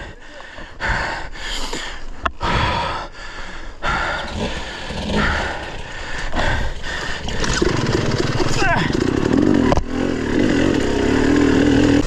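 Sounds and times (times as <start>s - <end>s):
person breathing heavily: 0.0s - 7.6s.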